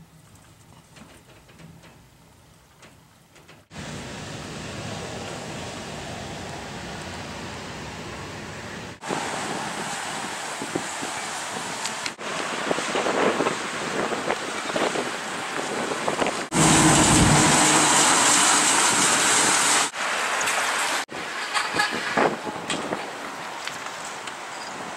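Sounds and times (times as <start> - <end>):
fire engine driving past: 3.7 - 21.1
wind blowing on microphone: 8.8 - 19.9, 21.1 - 23.3.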